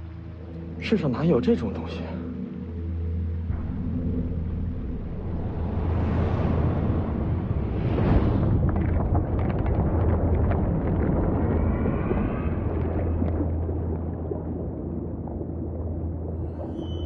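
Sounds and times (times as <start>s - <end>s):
deep underwater rumble: 1.4s - 17.0s
bubbly clicks: 8.3s - 16.8s
faint wavering tone: 16.4s - 17.0s.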